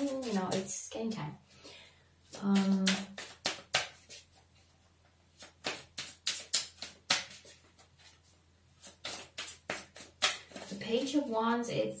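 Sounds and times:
cards clicking and tapping: 0:02.3 - 0:04.3, 0:05.4 - 0:08.1, 0:08.8 - 0:10.8.

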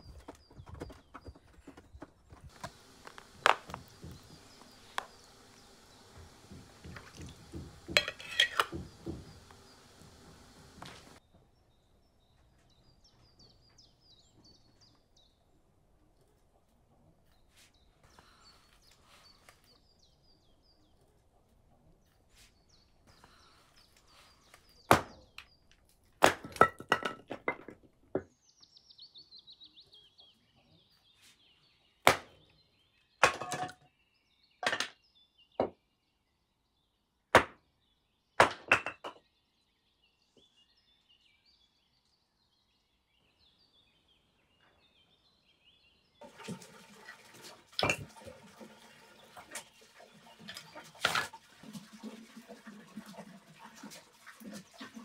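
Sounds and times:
small birds chirping: 0:00.0 - 0:26.2, 0:28.2 - 0:33.2, 0:39.2 - 0:46.2
sharp chopping knocks: 0:24.9 - 0:25.2, 0:32.1 - 0:32.4.

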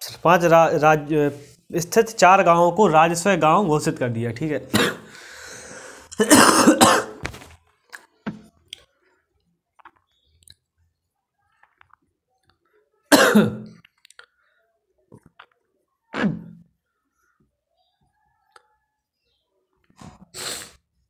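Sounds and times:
man coughing and clearing throat: 0:04.7 - 0:05.2, 0:06.1 - 0:07.2, 0:13.1 - 0:13.8, 0:16.2 - 0:16.6
marker tapping on whiteboard: 0:08.3 - 0:08.5.

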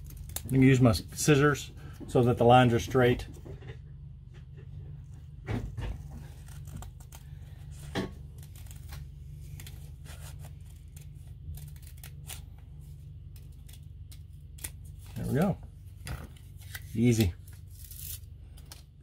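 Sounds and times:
steady low hum: 0:00.0 - 0:19.0
scissors snipping tape: 0:09.5 - 0:12.4.

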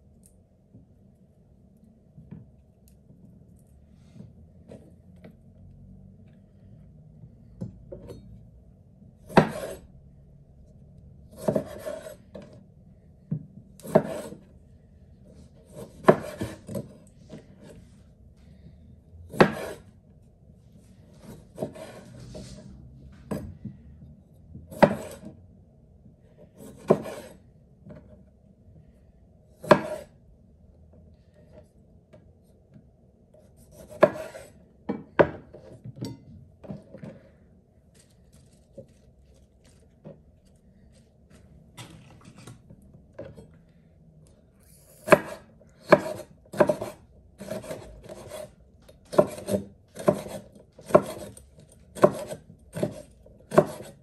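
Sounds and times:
knife cutting tomatoes: 0:09.3 - 0:09.8, 0:11.3 - 0:12.6, 0:13.8 - 0:14.5, 0:15.6 - 0:17.7, 0:19.3 - 0:19.9, 0:21.2 - 0:22.6, 0:24.7 - 0:25.3, 0:26.5 - 0:27.4, 0:29.6 - 0:30.2, 0:33.4 - 0:34.6, 0:44.6 - 0:54.0.

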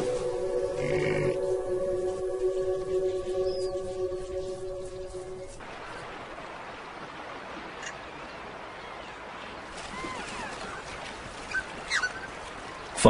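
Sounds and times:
water splashing and rushing: 0:02.2 - 0:13.0
faint high animal calls: 0:09.8 - 0:10.8, 0:11.5 - 0:12.3.

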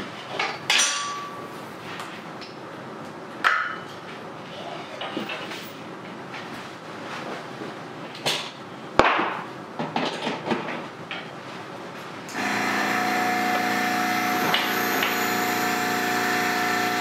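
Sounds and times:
airbrush compressor humming: 0:12.3 - 0:17.0.

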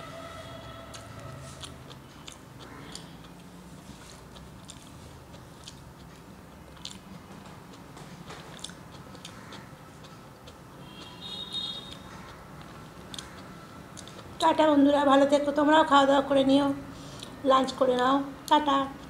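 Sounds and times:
person chewing with lip smacks: 0:00.9 - 0:14.5.

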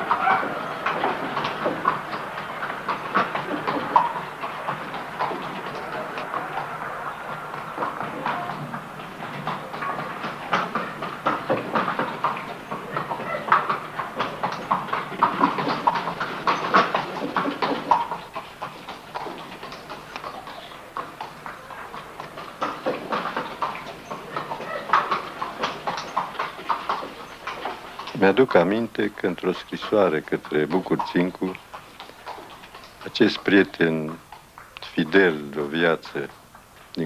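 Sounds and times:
cart clattering: 0:00.0 - 0:34.3
hooves clopping on cobbles: 0:00.0 - 0:37.0.

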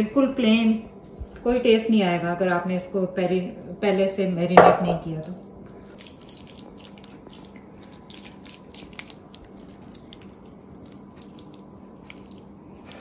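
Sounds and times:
hands squelching spice paste into meat: 0:05.8 - 0:13.0.

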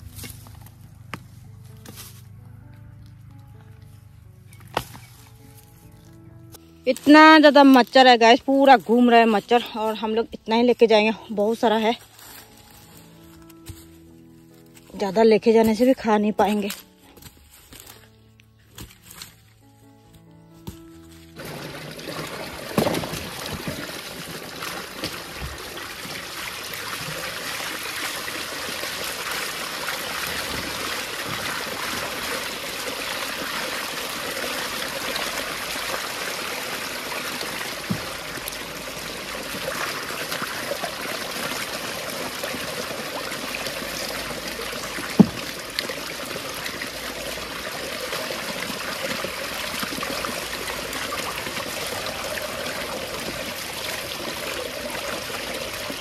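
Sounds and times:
roots washed by hand splashing: 0:20.6 - 0:56.0
water pouring into plastic tub: 0:21.4 - 0:56.0.

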